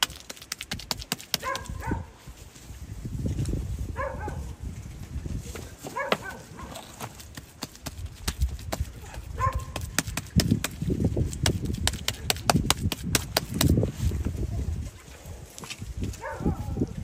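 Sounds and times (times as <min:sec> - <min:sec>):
wet clay slaps and squelches: 0:00.0 - 0:01.8, 0:06.2 - 0:08.9, 0:09.5 - 0:13.8.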